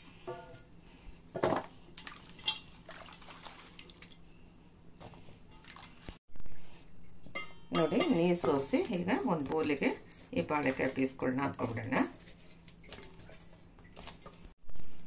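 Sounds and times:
water splashing and dripping: 0:02.0 - 0:04.2, 0:05.6 - 0:06.2.

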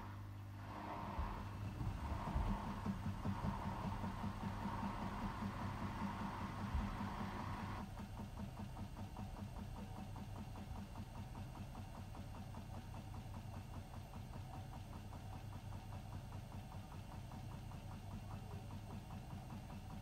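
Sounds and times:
washing machine motor hum: 0:00.0 - 0:20.0
washing machine drum ticking: 0:01.5 - 0:20.0.

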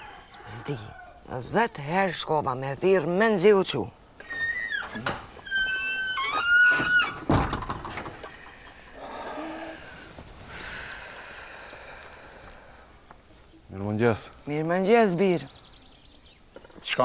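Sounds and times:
door hinges creaking: 0:04.2 - 0:09.4.

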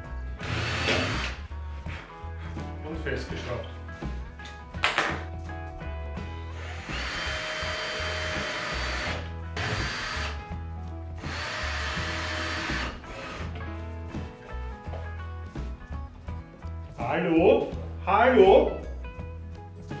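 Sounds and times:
background music: 0:00.0 - 0:20.0
cordless drill driving screws: 0:00.4 - 0:01.4, 0:06.6 - 0:10.4, 0:11.2 - 0:13.4.

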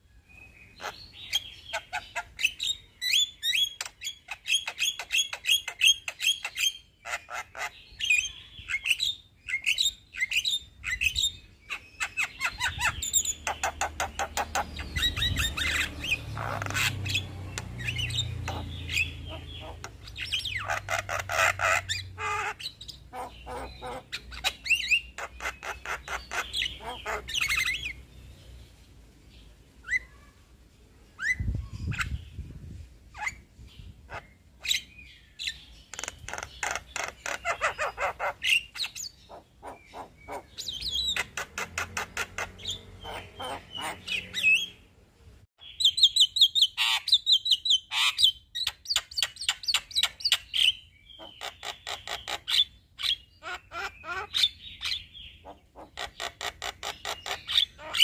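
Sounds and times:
bird singing rapid sharp notes: 0:07.8 - 0:28.4, 0:34.7 - 0:44.8.

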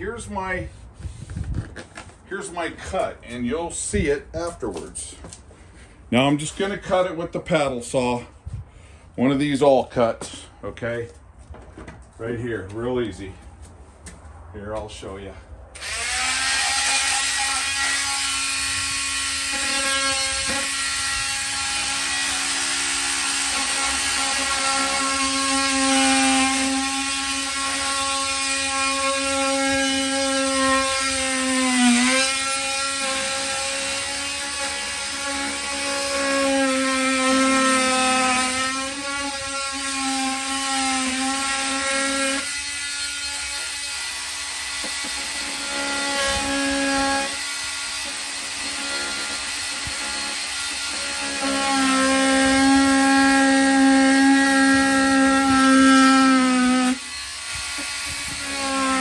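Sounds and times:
multi-tool cutting wood: 0:15.8 - 0:59.0.

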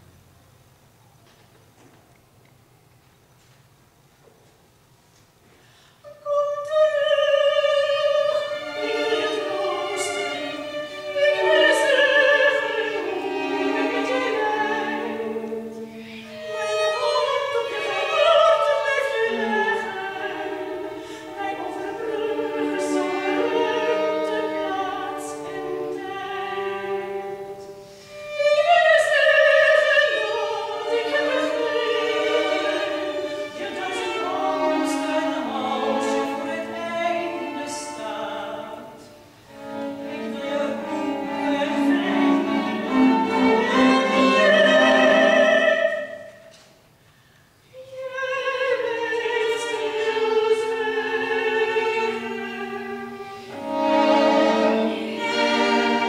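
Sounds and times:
woman singing opera: 0:06.0 - 0:46.6, 0:47.6 - 0:56.0
chamber ensemble playing: 0:30.0 - 0:46.1, 0:51.2 - 0:56.0.

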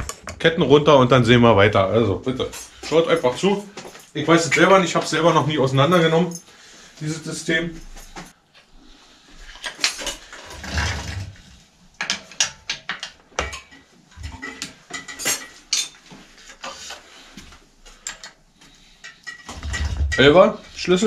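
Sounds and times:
metal tools clinking: 0:12.1 - 0:17.0, 0:17.9 - 0:21.0.

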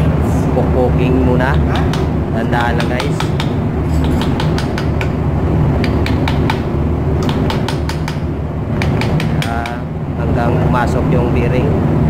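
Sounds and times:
low machinery hum: 0:00.0 - 0:12.0
sharp metal taps: 0:01.5 - 0:05.2, 0:05.8 - 0:09.8.

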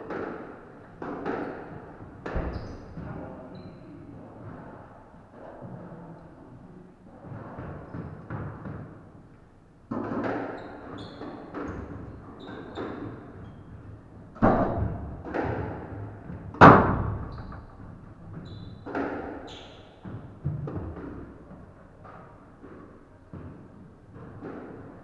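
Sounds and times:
squash ball hitting rackets: 0:00.0 - 0:03.1, 0:09.9 - 0:13.4, 0:14.3 - 0:25.0
shoes squeaking on wooden floor: 0:10.6 - 0:11.8, 0:18.3 - 0:19.8.

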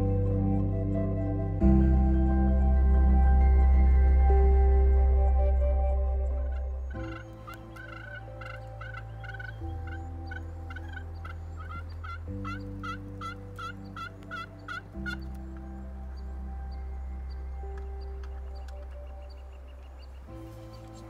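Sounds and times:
soft ambient music: 0:00.0 - 0:21.0
turkey calling: 0:06.4 - 0:21.0.

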